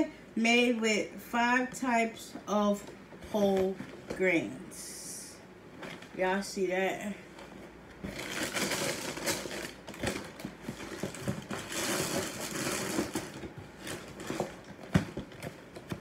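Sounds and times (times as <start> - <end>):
cereal box rustling: 8.1 - 15.2.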